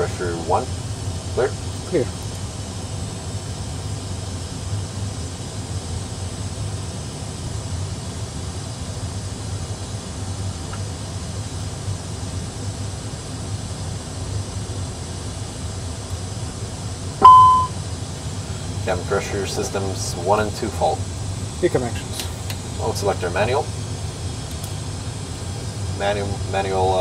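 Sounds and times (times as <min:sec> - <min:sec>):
constant low hum: 0:00.0 - 0:27.0.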